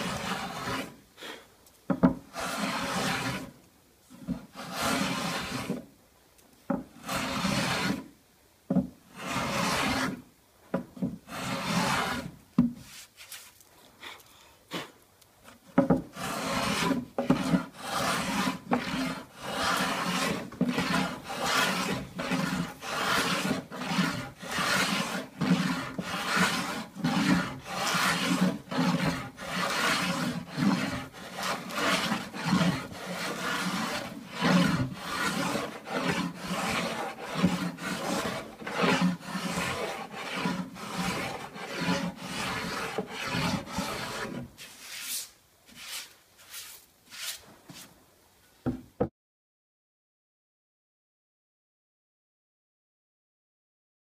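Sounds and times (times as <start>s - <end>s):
hand plane shaving wood: 0.0s - 0.9s, 2.3s - 3.5s, 4.3s - 5.8s, 7.0s - 8.0s, 9.2s - 10.2s, 11.2s - 13.1s, 15.8s - 47.9s.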